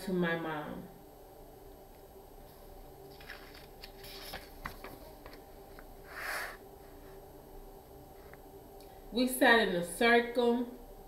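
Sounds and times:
book pages rustling: 0:03.1 - 0:07.1.

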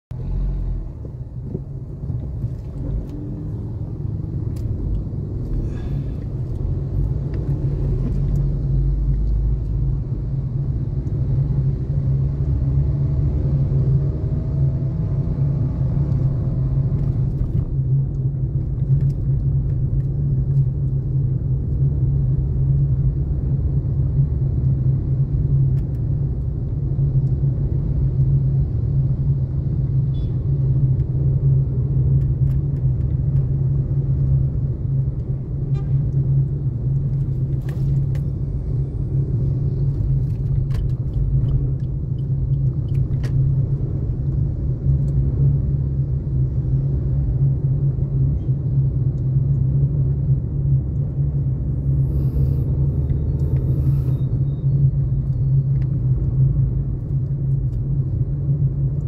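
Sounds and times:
vehicle engine and road noise: 0:00.0 - 0:59.0.

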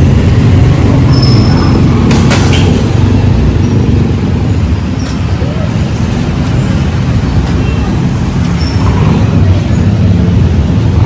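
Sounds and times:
motor vehicles rumbling: 0:00.0 - 0:11.0
faint voices: 0:05.1 - 0:10.2.

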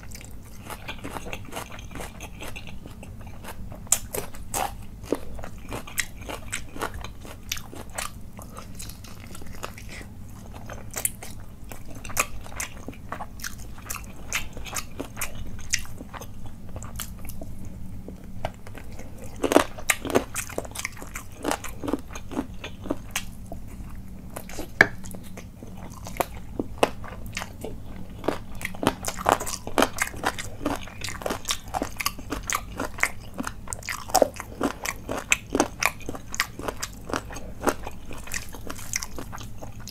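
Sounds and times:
chewing and biting food: 0:00.0 - 0:39.9.

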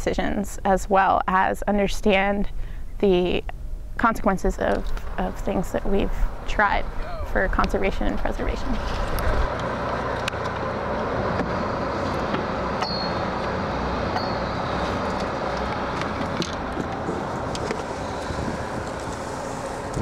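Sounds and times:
wind: 0:00.0 - 0:20.0
boat engine droning: 0:03.0 - 0:20.0
sea noise: 0:11.0 - 0:20.0.

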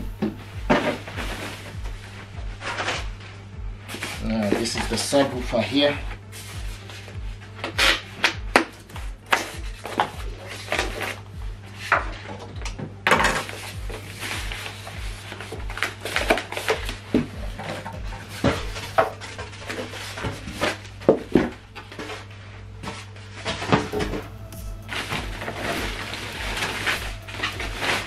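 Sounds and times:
plastic wrap rustling: 0:00.4 - 0:12.5, 0:13.4 - 0:28.0
foam squeaking and scraping: 0:22.0 - 0:28.0.

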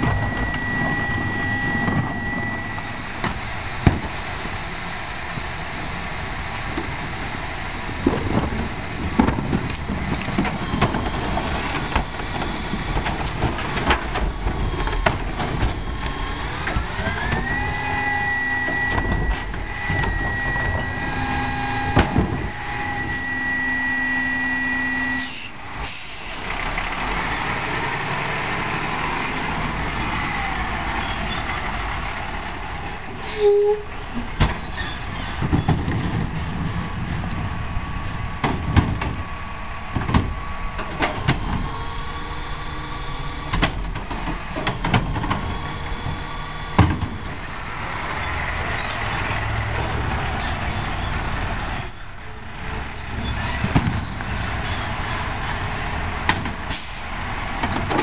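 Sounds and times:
hydraulic whine: 0:00.0 - 0:03.4, 0:15.8 - 0:26.6, 0:40.6 - 0:43.8, 0:45.2 - 0:47.5
truck engine revving: 0:00.0 - 0:33.2, 0:33.9 - 0:58.0
trash carts rattling and banging: 0:06.7 - 0:17.6, 0:30.7 - 0:58.0.

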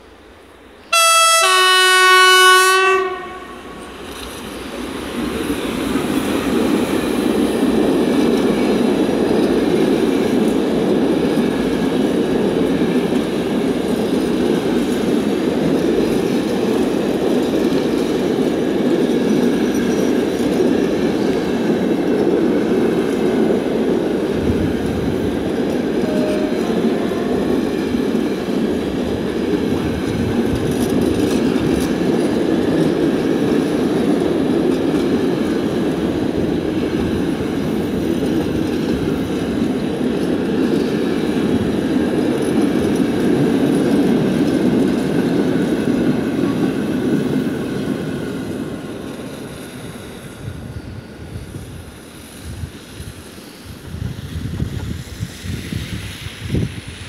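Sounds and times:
train wheels rumbling on rail: 0:00.0 - 0:57.0
train horn two notes: 0:00.9 - 0:04.0, 0:25.9 - 0:27.7.

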